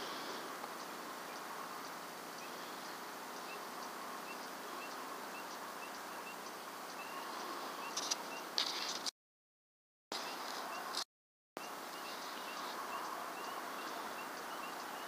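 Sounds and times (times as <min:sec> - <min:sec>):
steady hiss: 0:00.0 - 0:09.1, 0:11.6 - 0:15.0
small animal peeping: 0:00.8 - 0:09.0, 0:11.6 - 0:15.0.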